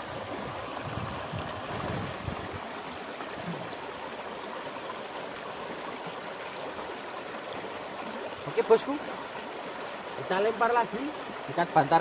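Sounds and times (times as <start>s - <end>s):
water rushing over rocks: 0.0s - 12.0s.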